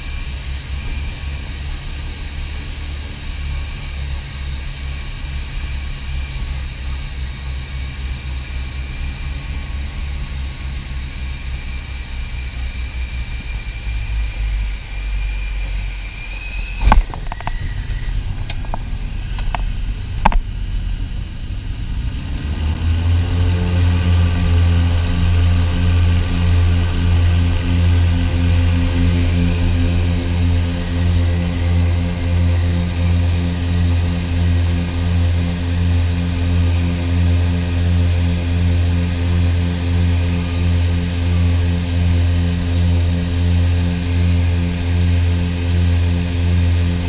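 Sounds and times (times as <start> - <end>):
aircraft engines droning: 0.0 - 47.0.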